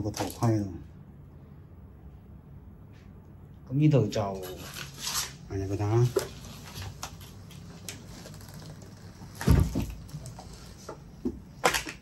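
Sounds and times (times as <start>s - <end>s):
rustling and handling noise: 4.2s - 12.0s.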